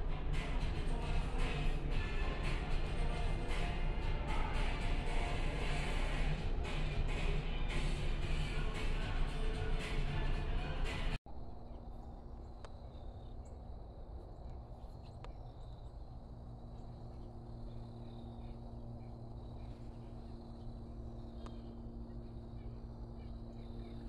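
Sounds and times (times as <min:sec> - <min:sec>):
background music: 0:00.0 - 0:11.2
low steady hum: 0:00.0 - 0:24.0
insect drone: 0:11.3 - 0:24.0.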